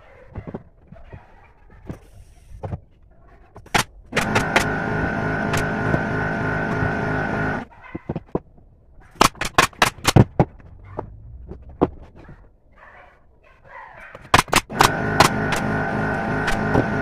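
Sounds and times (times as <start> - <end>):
nail gun firing into wood: 3.7 - 4.8, 9.2 - 10.5, 14.2 - 15.7
motor hum: 4.1 - 7.7, 14.6 - 17.0.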